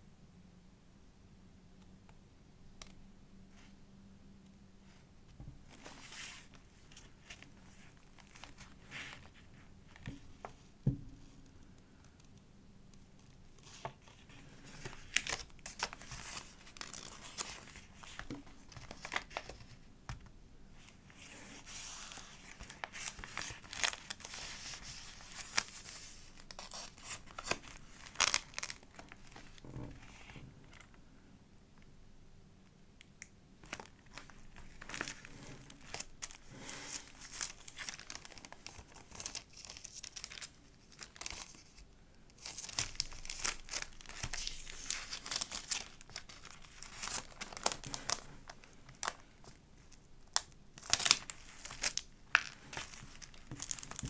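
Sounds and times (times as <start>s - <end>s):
paper pages crinkling: 5.7s - 10.6s, 13.2s - 19.9s, 20.8s - 30.9s, 33.6s - 54.0s.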